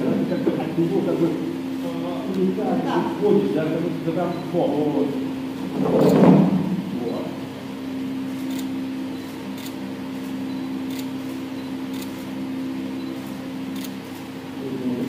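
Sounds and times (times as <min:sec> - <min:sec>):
low equipment hum: 0:00.0 - 0:15.0
camera shutter clicks: 0:11.9 - 0:12.3.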